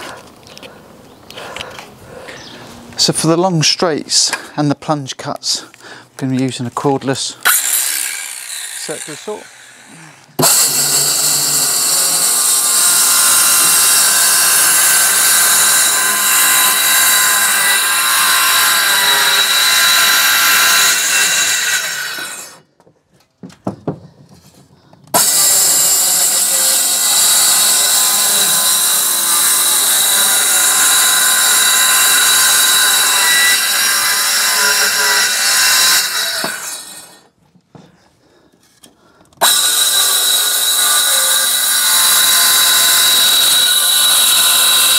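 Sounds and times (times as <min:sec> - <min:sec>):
circular saw cutting plywood: 0:07.4 - 0:22.6, 0:25.1 - 0:37.3, 0:39.4 - 0:44.9.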